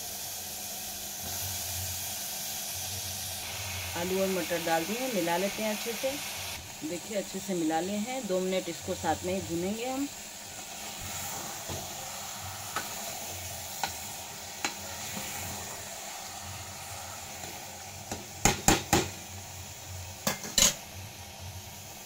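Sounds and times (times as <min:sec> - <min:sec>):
vegetables sizzling in a pot: 0:00.0 - 0:22.0.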